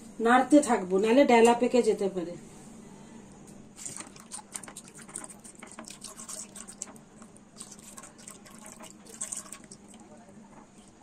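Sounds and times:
liquid sloshing: 3.8s - 11.0s.

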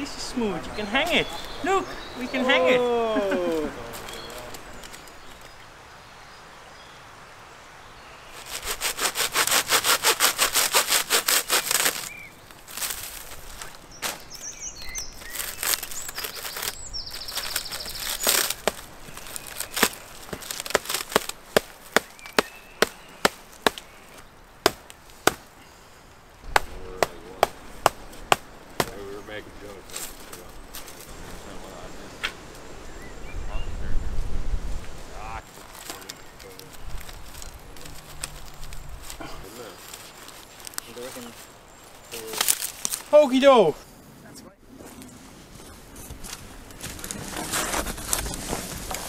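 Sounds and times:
shears snipping through reed: 8.4s - 14.2s, 15.0s - 25.5s, 42.1s - 43.2s.

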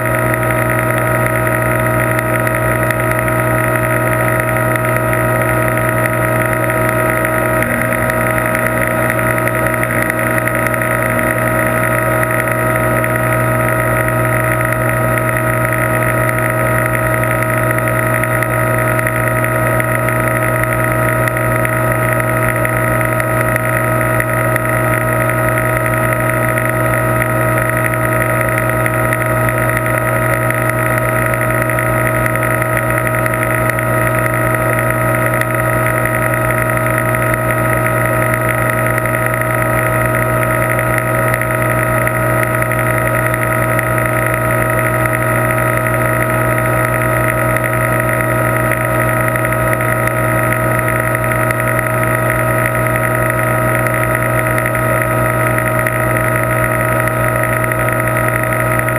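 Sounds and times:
aquarium pump humming: 0.0s - 58.9s.

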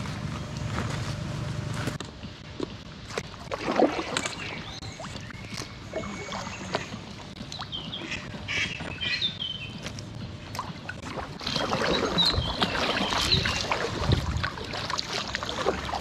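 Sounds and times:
paddle strokes splashing in water: 3.0s - 9.2s, 9.8s - 16.0s.

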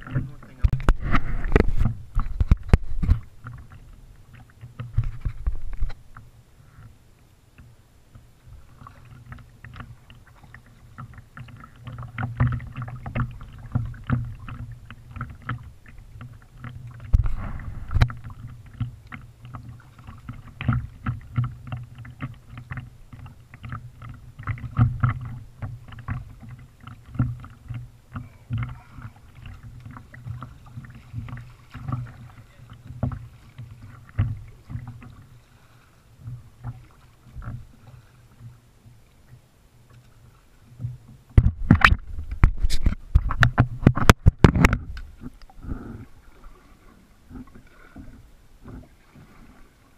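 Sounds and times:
paddle splashing water: 0.0s - 49.9s
small clicks and knocks: 40.8s - 45.5s.

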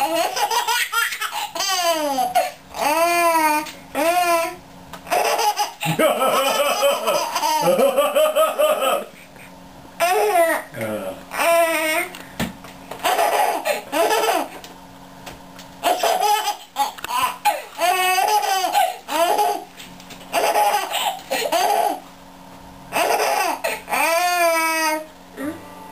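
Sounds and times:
baby laughing and squealing: 0.0s - 7.7s, 13.0s - 14.6s, 15.8s - 19.7s, 20.3s - 22.0s, 22.9s - 25.0s.

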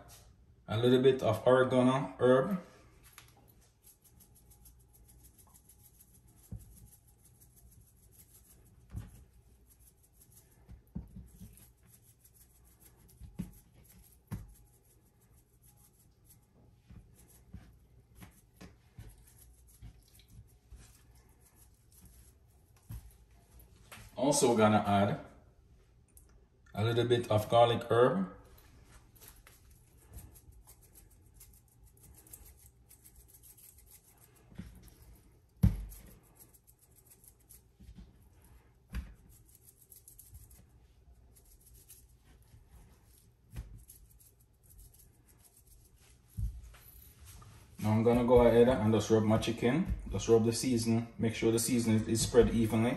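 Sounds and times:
hands rustling and knocking: 8.3s - 14.8s, 16.8s - 24.2s, 34.4s - 40.6s, 45.9s - 50.3s.

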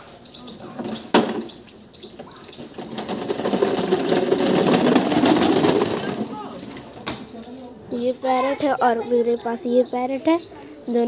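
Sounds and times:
plastic wheels rumbling over paving: 0.6s - 7.0s.

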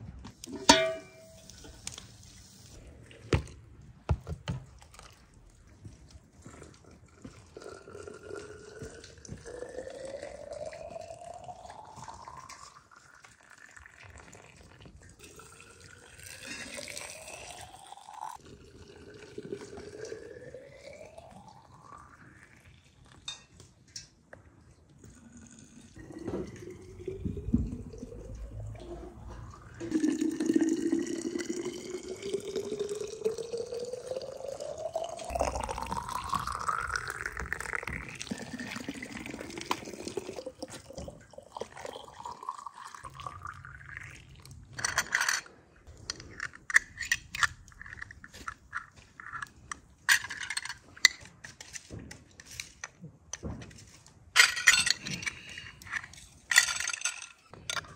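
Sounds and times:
water pouring into glass jars: 4.7s - 23.4s, 25.0s - 44.9s.

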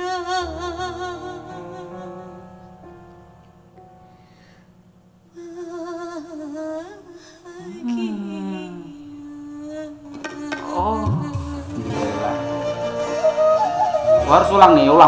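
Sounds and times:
woman singing ballad: 0.0s - 2.8s, 5.3s - 14.3s
soft band accompaniment: 10.0s - 15.0s.

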